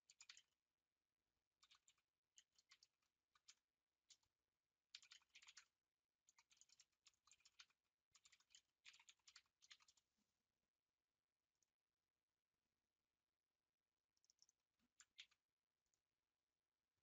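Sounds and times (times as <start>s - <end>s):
faint keyboard typing: 0.0s - 0.6s, 1.6s - 4.3s, 4.9s - 10.1s, 14.2s - 16.0s.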